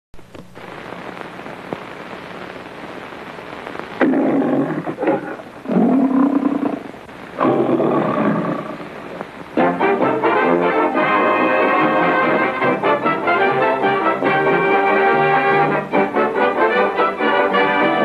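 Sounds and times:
film soundtrack hiss: 0:00.2 - 0:18.0
lion roaring: 0:04.0 - 0:09.0.

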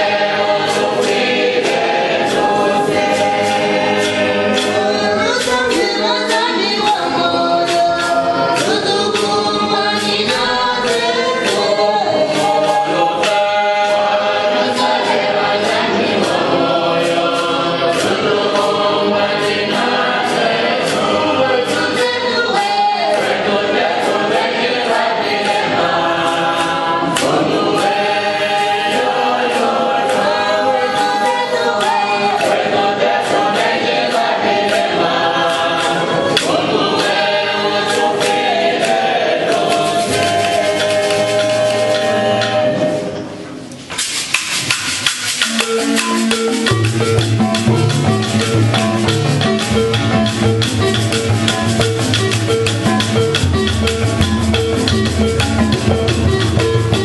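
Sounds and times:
percussive beat: 0:00.0 - 0:42.9, 0:43.8 - 0:57.0
wooden xylophone playing: 0:00.0 - 0:43.4, 0:44.0 - 0:57.0
choir singing a hymn: 0:00.0 - 0:43.7.

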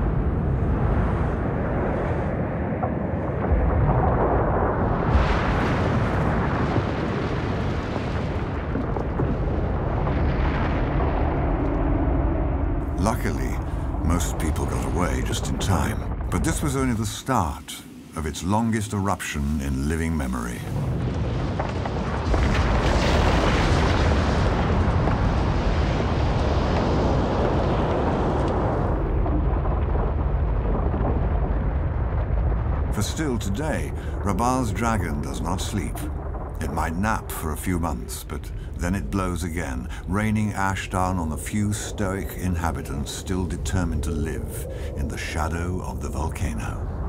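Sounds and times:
volcanic vent rumbling: 0:00.0 - 0:47.0.

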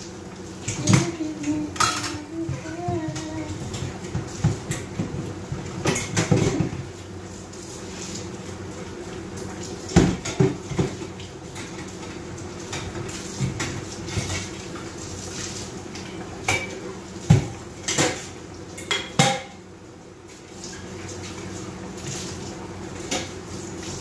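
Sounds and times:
metal pots and cutlery clattering: 0:00.8 - 0:02.3, 0:17.8 - 0:19.6.

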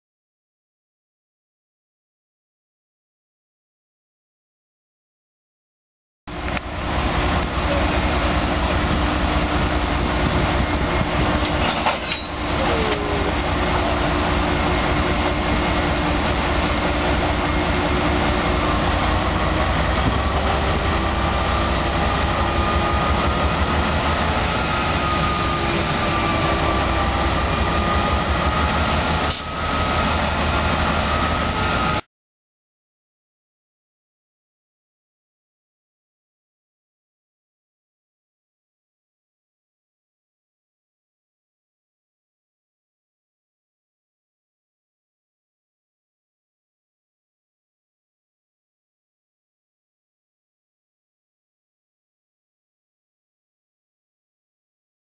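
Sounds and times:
diesel locomotive idling: 0:06.3 - 0:32.0.

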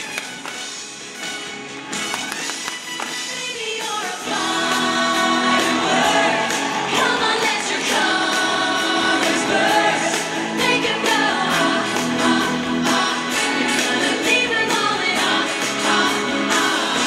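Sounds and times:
upbeat pop music: 0:00.0 - 0:17.0
group of voices singing: 0:03.4 - 0:17.0.

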